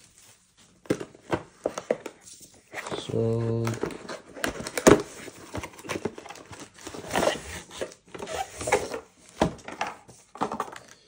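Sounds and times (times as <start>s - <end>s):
cardboard packaging crinkling: 0.0s - 11.0s
box clicks and knocks: 3.6s - 11.0s.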